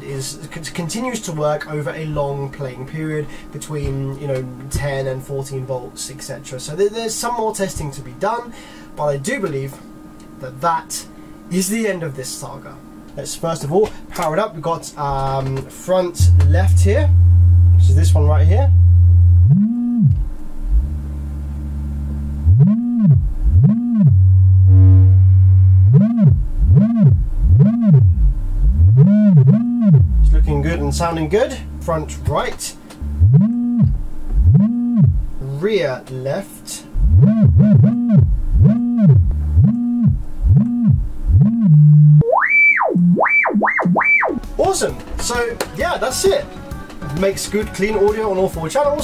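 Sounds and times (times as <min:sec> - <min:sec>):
low sine-wave test tones: 0:14.3 - 0:35.7, 0:36.9 - 0:44.7.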